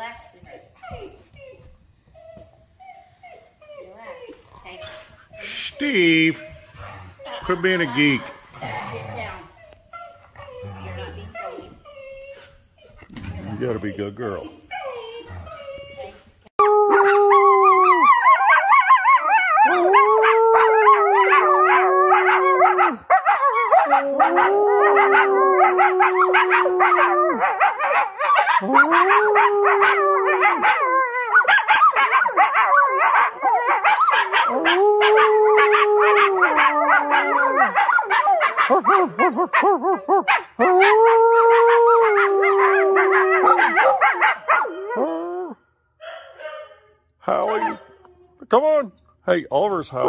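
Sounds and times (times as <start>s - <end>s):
coyote and dog howling: 16.6s - 45.6s
yips and barks: 20.6s - 45.0s, 46.0s - 48.0s.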